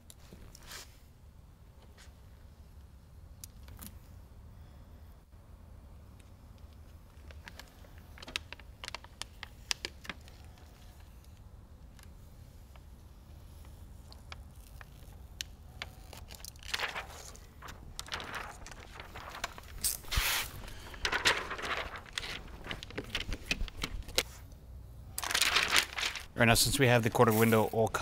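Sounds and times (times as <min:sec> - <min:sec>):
window film crinkling and rustling: 0:07.1 - 0:11.4, 0:12.0 - 0:24.4, 0:25.2 - 0:28.0.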